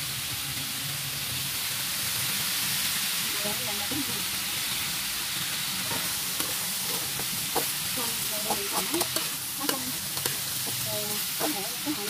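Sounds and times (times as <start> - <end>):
chicken sizzling in a wok: 0.0 - 12.0
utensil scraping metal wok: 3.4 - 12.0.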